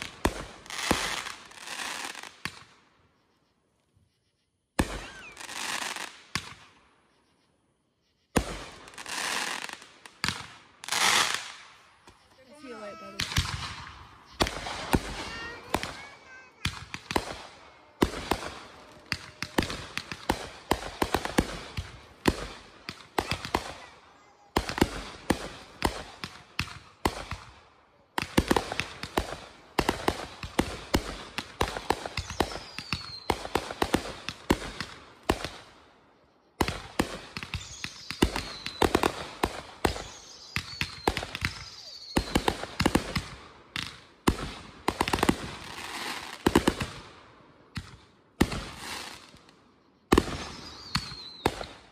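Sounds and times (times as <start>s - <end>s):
fireworks bangs and crackles: 0.0s - 3.0s, 4.7s - 7.0s, 8.2s - 51.9s
fireworks falling whistles: 0.0s - 27.6s, 28.2s - 47.0s, 47.7s - 51.9s.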